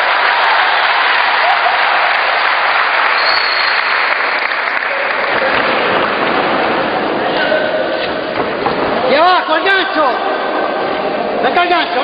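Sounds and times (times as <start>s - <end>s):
crowd applauding: 0.0s - 7.2s
crowd voices: 4.3s - 12.0s.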